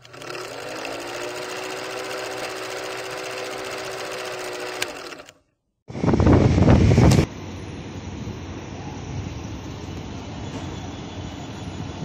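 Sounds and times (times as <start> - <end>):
film projector clattering: 0.0 - 5.4.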